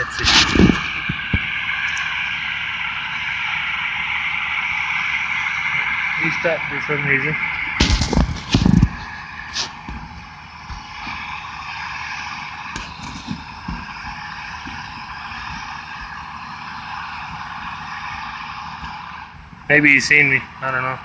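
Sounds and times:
excavator diesel engine and hydraulics: 0.0s - 21.0s.

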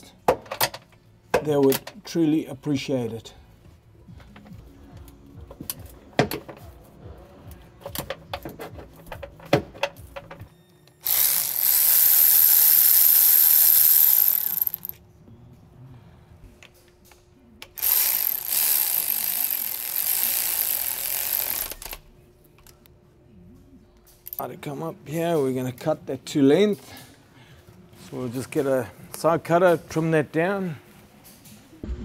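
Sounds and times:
tools clicking and knocking: 0.3s - 2.1s, 4.2s - 6.8s, 7.5s - 10.5s, 11.1s - 15.0s, 24.0s - 24.5s
electric ratchet spinning bolt: 11.0s - 15.0s, 17.7s - 22.0s.

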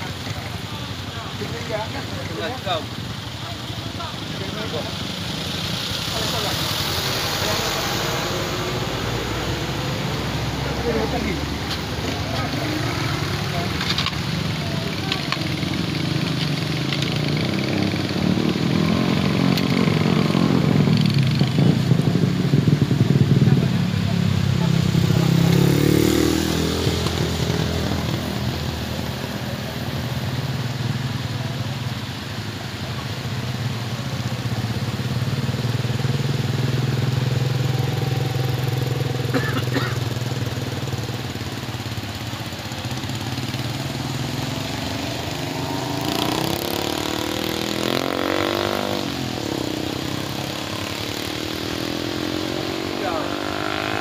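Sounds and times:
motorcycles passing: 0.0s - 54.0s
passing engine: 0.0s - 54.0s
traffic on a wet road: 0.0s - 54.0s.

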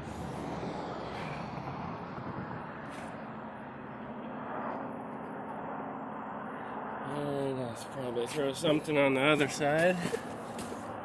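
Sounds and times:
distant traffic rumble: 0.0s - 11.0s.

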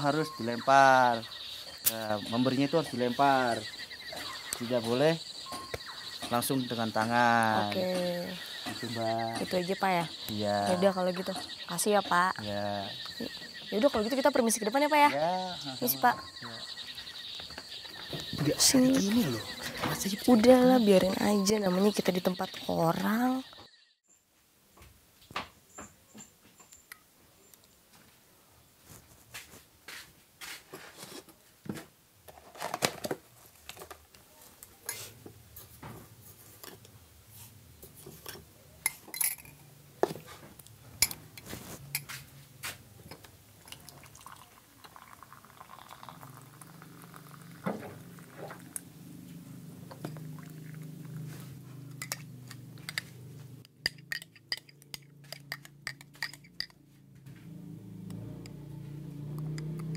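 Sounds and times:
metal pots and utensils clinking: 38.2s - 39.6s, 41.0s - 42.2s, 53.8s - 56.8s.

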